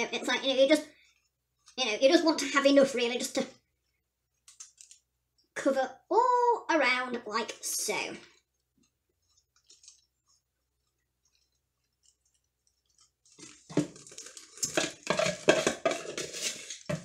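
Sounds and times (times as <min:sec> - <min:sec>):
knife scraping a tub: 0:13.0 - 0:17.0.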